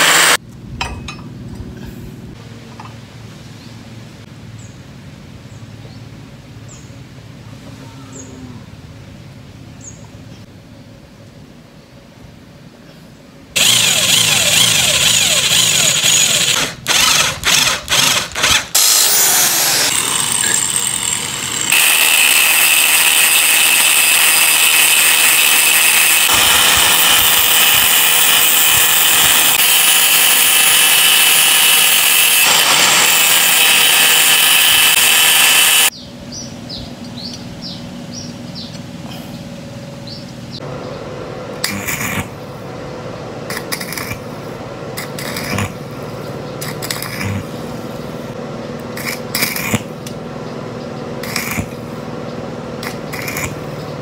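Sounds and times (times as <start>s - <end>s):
angle grinder cutting steel rod: 0.0s - 0.4s, 13.6s - 35.9s.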